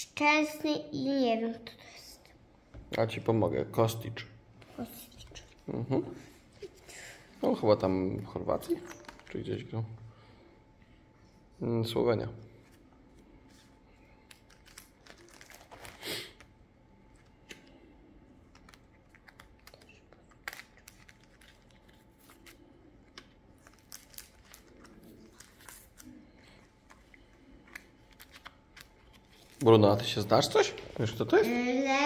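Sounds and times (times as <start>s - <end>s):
plastic pockets crinkling: 14.2s - 16.5s, 18.5s - 29.8s.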